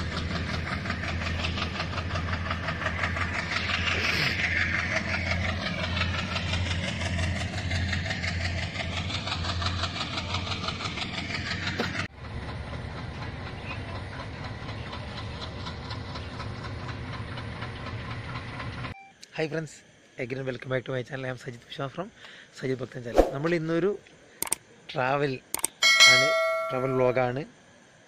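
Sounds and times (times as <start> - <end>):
train engine running: 0.0 - 19.0, 24.2 - 24.8, 25.5 - 28.0.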